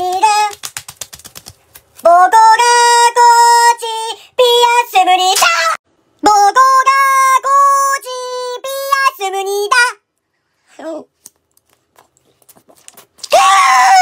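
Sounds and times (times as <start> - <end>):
high sung voice: 2.0 - 10.0
person shouting: 13.3 - 14.0.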